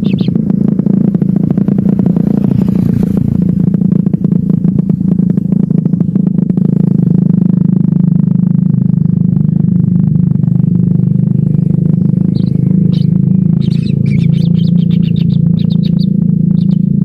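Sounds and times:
nestlings chirping rapidly: 0.0s - 0.4s, 11.8s - 17.0s
low engine-like drone: 0.0s - 17.0s.

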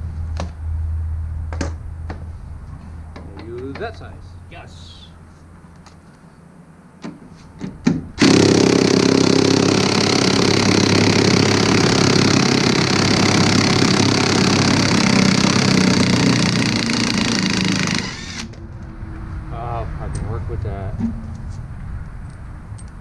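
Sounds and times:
impact wrench hammering: 8.2s - 18.5s.

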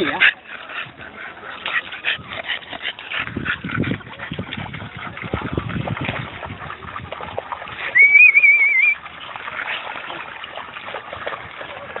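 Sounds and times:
high wavering whistle: 8.0s - 9.0s.

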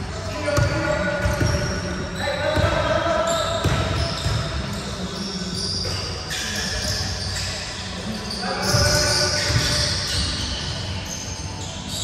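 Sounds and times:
echoing voices: 0.0s - 12.0s
sneakers squeaking: 0.1s - 12.0s
basketballs bouncing on hardwood: 0.6s - 1.7s, 3.6s - 4.5s, 8.6s - 9.8s.

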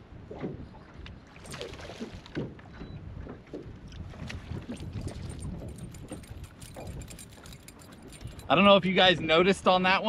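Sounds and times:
water splashing around a boat: 0.0s - 10.0s
fish thrashing at the surface: 1.4s - 2.6s.

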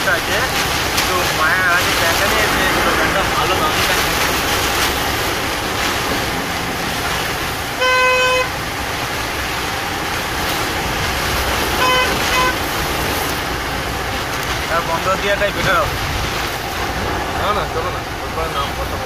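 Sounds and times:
heavy rain on wet road: 0.0s - 19.0s
vehicle horn honking: 7.7s - 8.6s, 11.8s - 12.7s.

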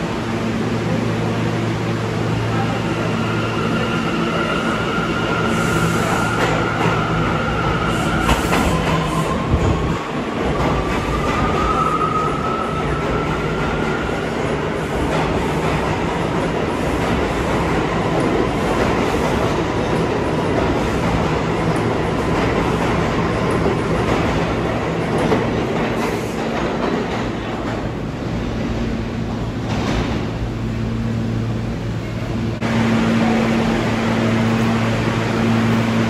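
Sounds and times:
wheels rumbling on rail: 0.0s - 36.0s
train cars clacking: 6.0s - 30.4s.

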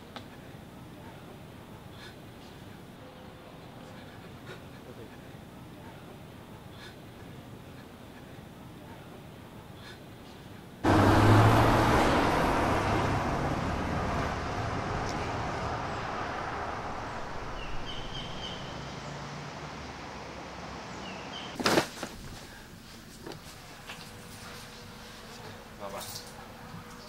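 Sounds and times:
vehicle passing close by: 10.8s - 21.6s.

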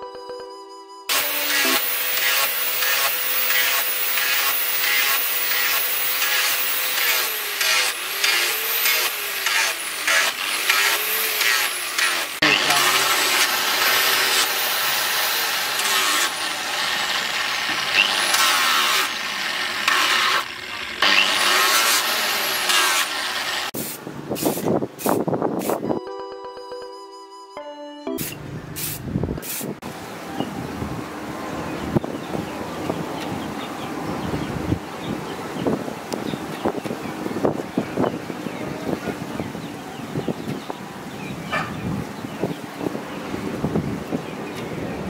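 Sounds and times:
angle grinder sanding: 1.1s - 23.9s
short spray bursts: 23.8s - 25.8s, 28.2s - 29.8s.

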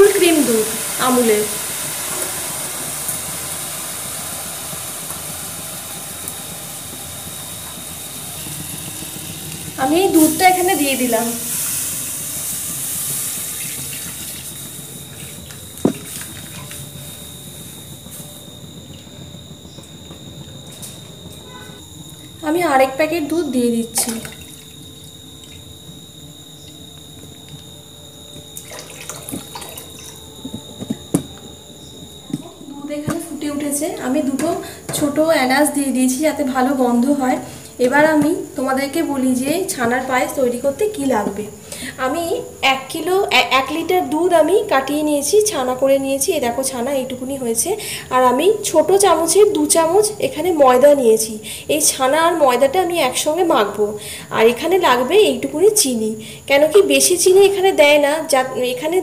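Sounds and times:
gas burner hissing: 0.0s - 59.0s
water heating in wok: 0.0s - 59.0s
milk pouring into liquid: 28.5s - 31.3s.

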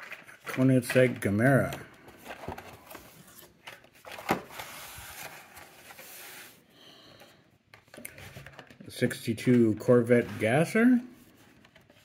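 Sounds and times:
card sliding out of box: 4.1s - 6.6s.

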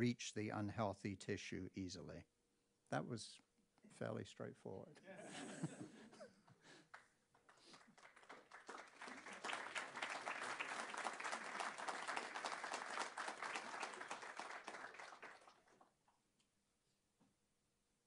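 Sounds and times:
audience applause: 7.4s - 15.9s.

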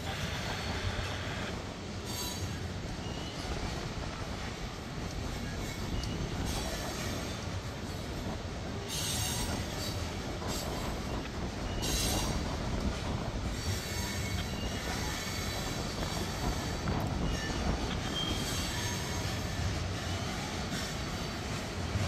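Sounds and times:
train wheels rumbling on rail: 0.0s - 22.0s
high wheel squeals: 13.5s - 20.9s.

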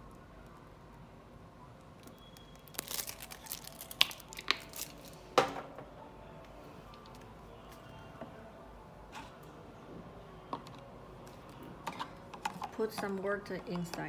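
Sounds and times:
plastic rustling: 2.0s - 5.3s.

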